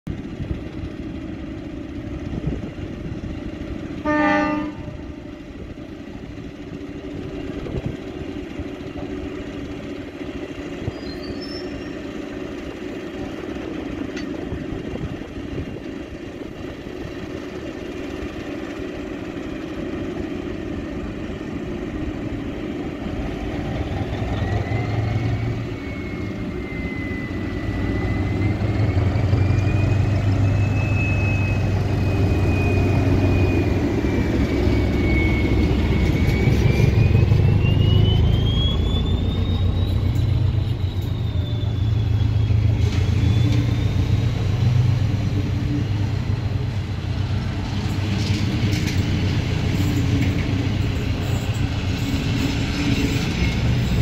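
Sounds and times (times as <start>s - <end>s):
diesel locomotive engine running: 0.1s - 54.0s
train horn toot: 4.0s - 5.2s
high whine wavering in pitch: 22.1s - 48.0s.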